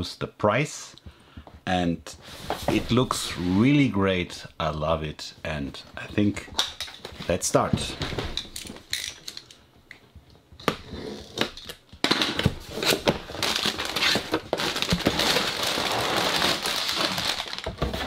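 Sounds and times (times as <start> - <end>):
plastic bags crinkling: 12.7 - 18.0.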